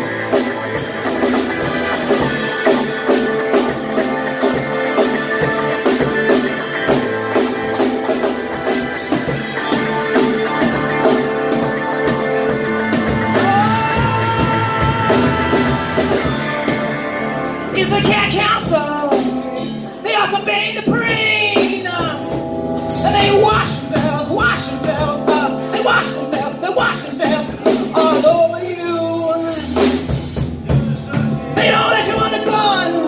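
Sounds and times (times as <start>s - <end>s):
bending melodic lead line: 0.0s - 33.0s
live rock band playing: 0.0s - 33.0s.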